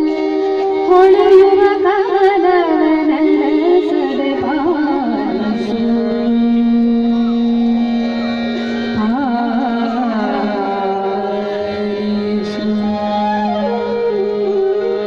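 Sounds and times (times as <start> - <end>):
harmonium: 0.0 - 15.0
woman singing classical vocals: 0.9 - 6.0.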